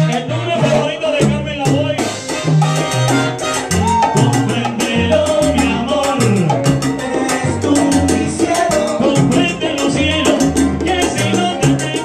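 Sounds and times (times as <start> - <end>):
trombone section: 0.0 - 6.4
bass line: 0.0 - 12.0
timbales and bongos rhythm: 0.0 - 12.0.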